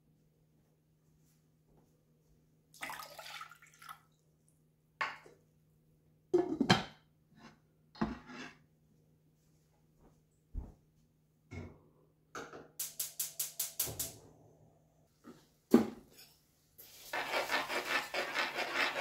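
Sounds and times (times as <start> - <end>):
metal spoon stirring rice in saucepan: 16.1 - 19.0.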